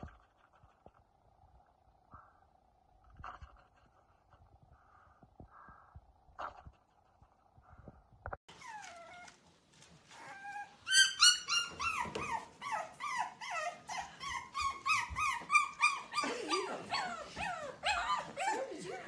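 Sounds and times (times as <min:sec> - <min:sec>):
puppies whining and yelping: 0:08.5 - 0:09.4, 0:10.0 - 0:19.0.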